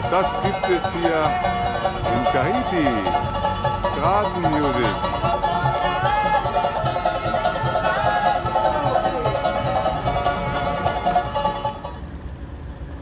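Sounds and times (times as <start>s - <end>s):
acoustic guitars and ukuleles strumming: 0.0s - 12.3s.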